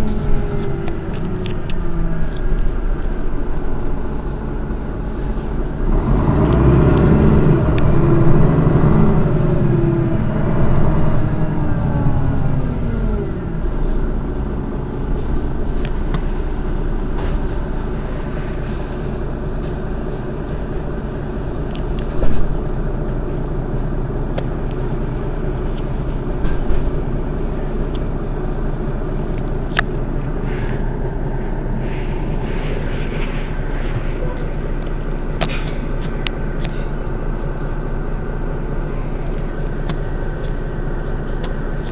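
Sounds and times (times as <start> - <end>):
bus engine idling: 0.0 - 41.9.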